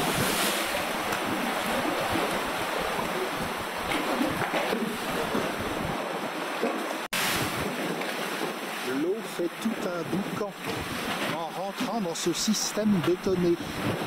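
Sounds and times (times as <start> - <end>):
wind buffeting microphone: 0.0 - 6.0, 13.6 - 14.0
waves washing and sloshing: 0.0 - 14.0.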